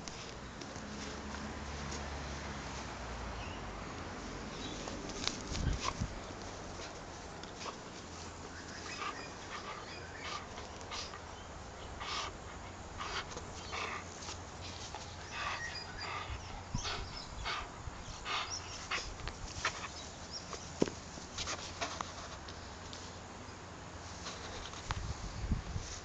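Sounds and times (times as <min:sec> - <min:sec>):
puppy breathy playing sounds: 0:04.4 - 0:22.4.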